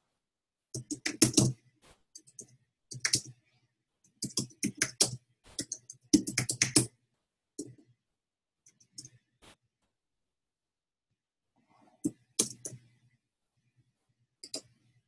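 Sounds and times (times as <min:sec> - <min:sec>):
computer keyboard typing: 0:00.8 - 0:01.6, 0:02.2 - 0:03.4, 0:04.1 - 0:06.9, 0:12.1 - 0:12.8.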